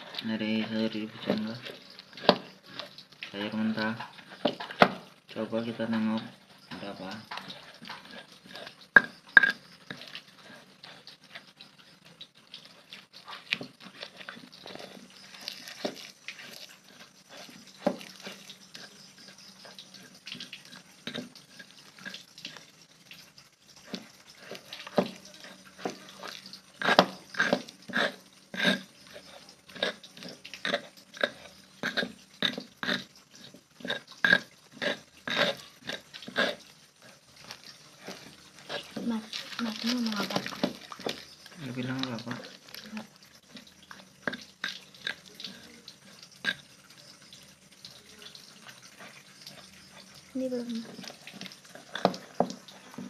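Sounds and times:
stone pestle grinding in mortar: 0.0s - 12.0s, 12.6s - 47.4s, 50.8s - 53.0s.

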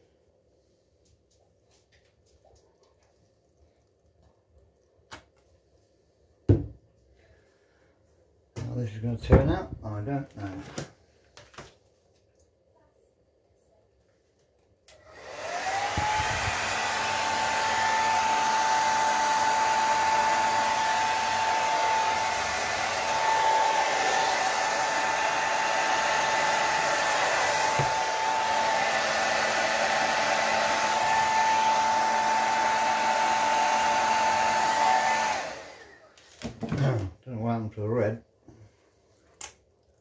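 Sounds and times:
hair dryer motor whine: 14.9s - 36.1s.

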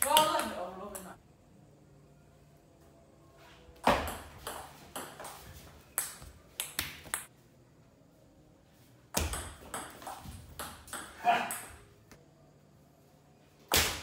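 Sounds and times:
ball bouncing on table: 3.8s - 5.4s, 9.2s - 11.8s
table tennis ball hitting paddles: 3.8s - 7.3s, 9.1s - 11.8s.

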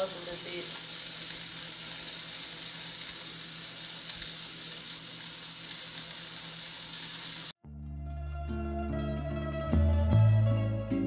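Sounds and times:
food sizzling in a skillet: 0.0s - 7.6s.

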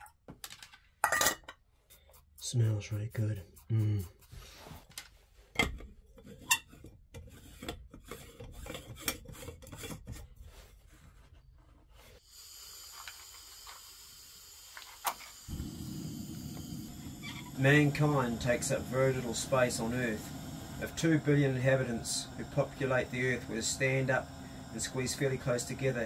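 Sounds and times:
gas stove hissing: 12.2s - 26.0s
gas burner lighting: 12.3s - 26.0s.

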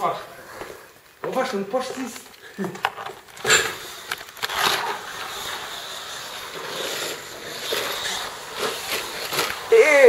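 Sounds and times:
slot car motor whirring: 3.4s - 9.8s.

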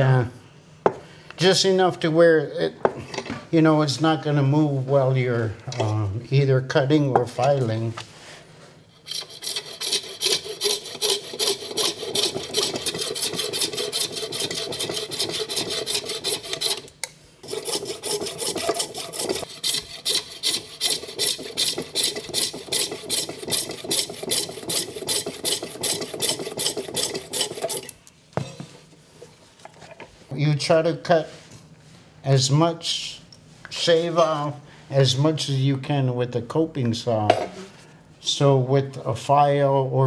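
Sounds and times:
coping saw cutting ivory: 9.0s - 27.9s.

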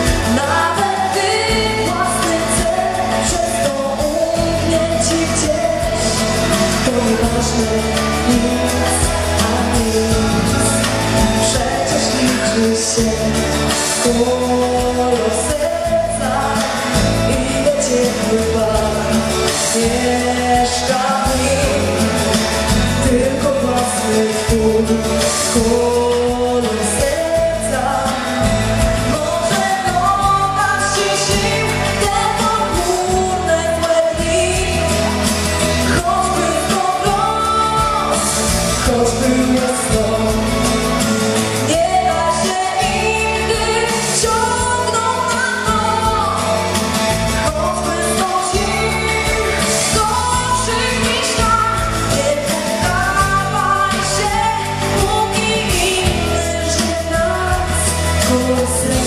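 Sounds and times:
amplified pop accompaniment: 0.0s - 59.0s
woman singing into microphone: 0.0s - 59.0s.

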